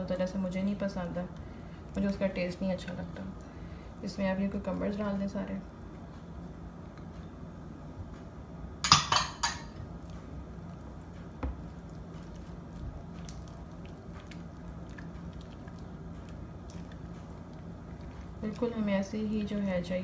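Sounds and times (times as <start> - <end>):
dishware clattering: 8.8 - 9.7
mixing in a bowl: 9.7 - 20.0.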